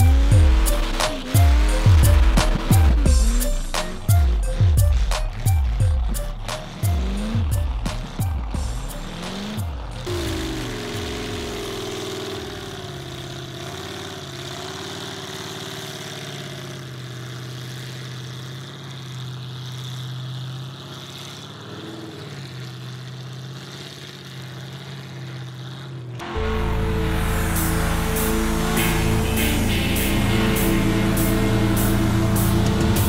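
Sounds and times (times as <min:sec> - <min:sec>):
loud music: 0:00.0 - 0:11.7, 0:26.2 - 0:33.0
truck engine idling: 0:00.0 - 0:33.0.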